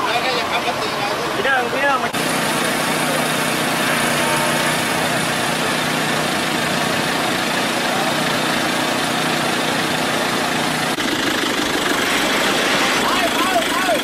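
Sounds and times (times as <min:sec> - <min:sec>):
outdoor noise: 0:00.0 - 0:14.0
vehicle engine idling: 0:00.0 - 0:14.0.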